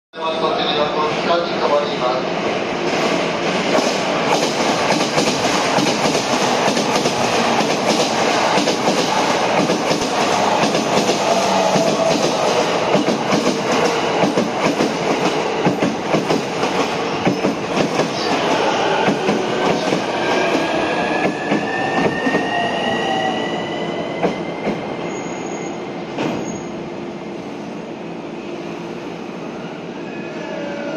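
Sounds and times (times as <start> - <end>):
train wheel noise rushing: 2.4 - 22.7.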